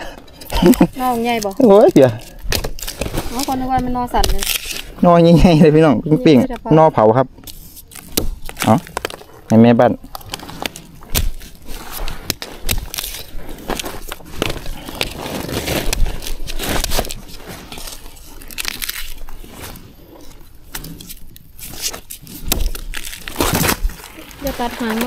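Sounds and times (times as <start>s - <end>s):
dry bamboo leaves rustling: 0.0s - 25.0s
bamboo snapping: 0.4s - 5.0s, 7.4s - 25.0s.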